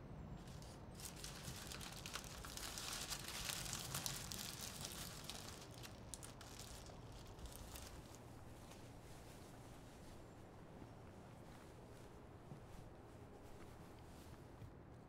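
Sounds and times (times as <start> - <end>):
low steady hum: 0.0 - 15.0
paper crinkling and rustling: 0.4 - 9.3.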